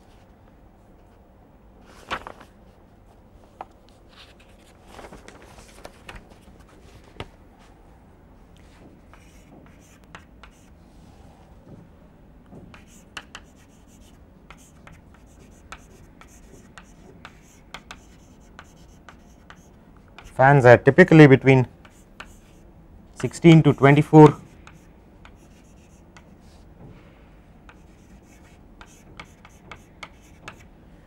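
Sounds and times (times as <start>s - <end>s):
pen scratching on paper: 9.1s - 10.7s, 12.7s - 20.4s, 24.6s - 26.1s, 27.7s - 30.6s.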